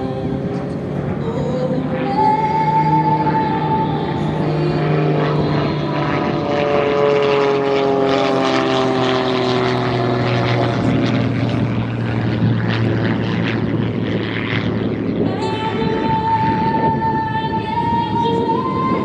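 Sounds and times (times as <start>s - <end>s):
propeller airplane engine drone: 0.0s - 19.0s.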